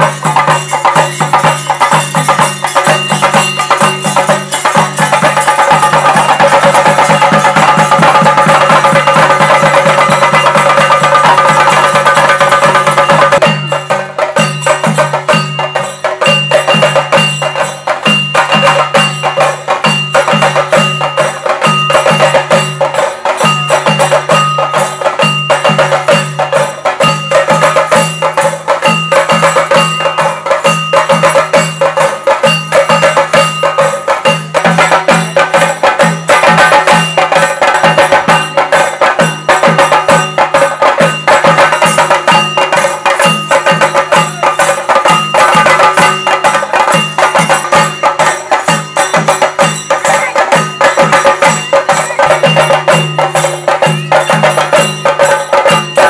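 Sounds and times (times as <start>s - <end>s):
drums beaten in fast rhythm: 0.0s - 56.0s
metallic ringing: 0.0s - 56.0s.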